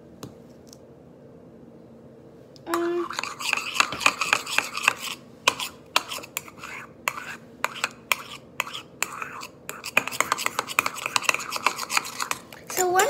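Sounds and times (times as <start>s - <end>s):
metal spoon scraping a bowl: 2.7s - 13.0s.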